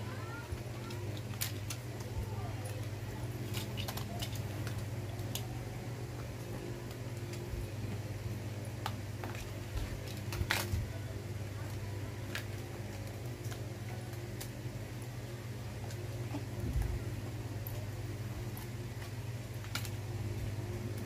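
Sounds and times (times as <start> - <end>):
packaging clicking and crinkling: 0.2 - 8.0, 8.8 - 14.6, 18.5 - 20.0
packaging crackle: 0.8 - 5.6, 8.8 - 14.6, 18.5 - 20.1.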